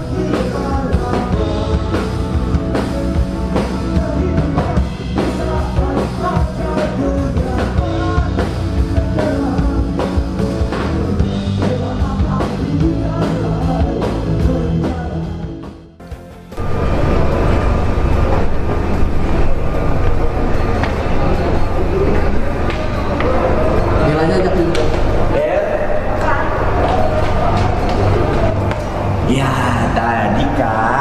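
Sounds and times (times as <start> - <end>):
man singing into microphone: 0.0 - 2.8, 3.4 - 15.6
drum kit: 0.0 - 17.4
electric bass: 0.0 - 31.0.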